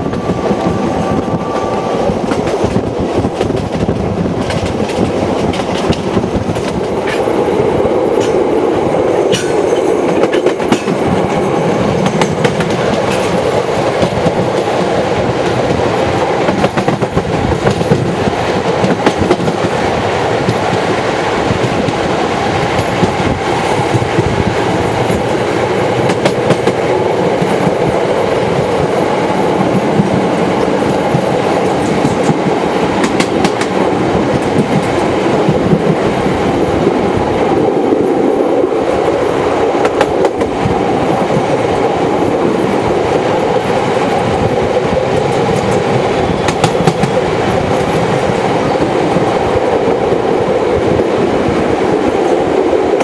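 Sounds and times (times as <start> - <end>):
train wheels rumbling on rails: 0.0 - 53.0
wheels clicking over rail joints: 9.3 - 15.8.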